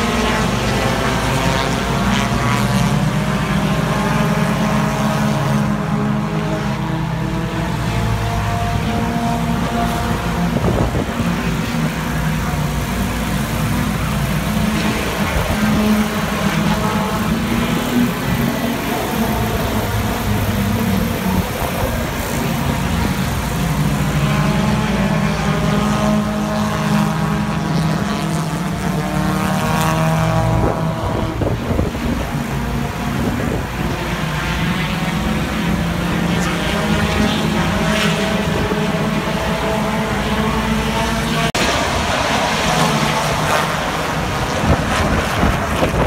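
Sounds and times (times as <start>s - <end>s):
race car engines droning: 0.0s - 46.0s.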